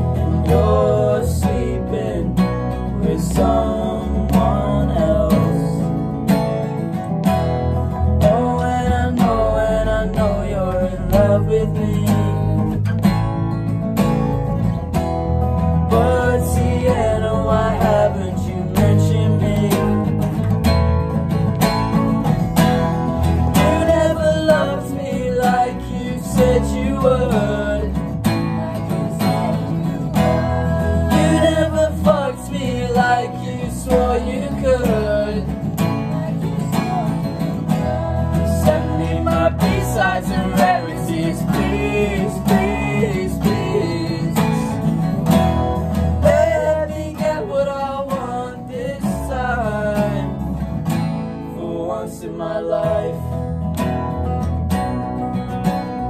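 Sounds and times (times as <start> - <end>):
person singing: 0.0 - 6.0, 8.2 - 12.8, 15.9 - 20.1, 23.3 - 45.0, 45.8 - 50.5
acoustic guitars strumming: 0.0 - 56.0
electric bass guitar: 0.0 - 56.0.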